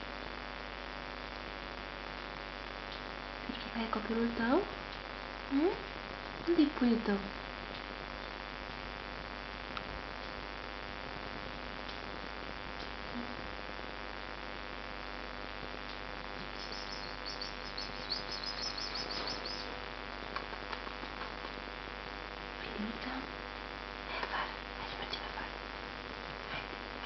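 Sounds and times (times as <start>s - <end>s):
electrical hum and hiss: 0.0s - 27.0s
rapid high-pitched chirping: 16.4s - 19.8s.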